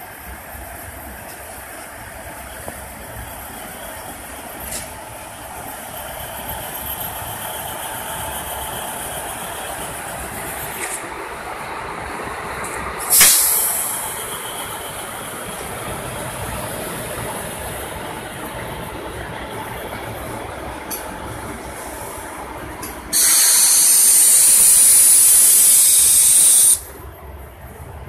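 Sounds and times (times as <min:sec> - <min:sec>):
electric locomotive running: 0:00.0 - 0:28.0
loud hiss of air: 0:13.0 - 0:14.9, 0:23.1 - 0:26.9.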